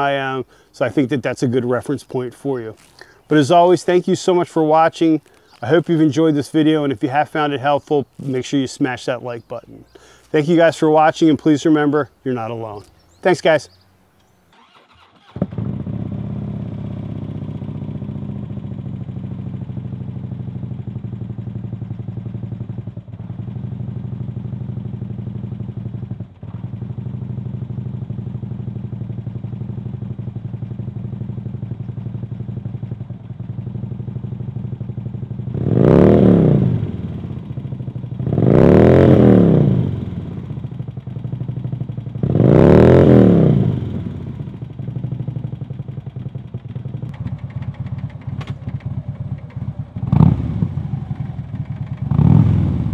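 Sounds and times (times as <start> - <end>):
motorcycle engine idling: 12.6 - 52.9
engine revving: 14.5 - 20.2, 35.4 - 45.6, 47.0 - 52.9.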